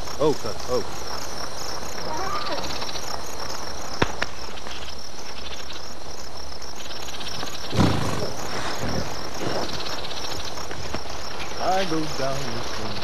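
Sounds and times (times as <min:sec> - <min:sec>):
insects chirring: 0:00.0 - 0:13.0
low thump: 0:07.7 - 0:08.4.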